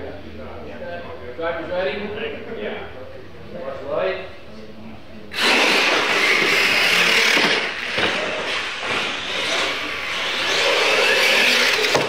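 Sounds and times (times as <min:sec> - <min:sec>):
toy trucks rushing on concrete: 0:05.3 - 0:12.0.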